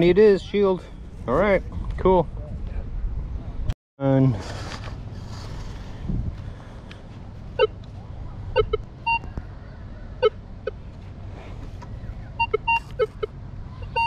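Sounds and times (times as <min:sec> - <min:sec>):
high-pitched detector tones: 0:08.5 - 0:09.3, 0:12.4 - 0:14.0
metal detector beeps: 0:08.6 - 0:09.3, 0:12.4 - 0:14.0.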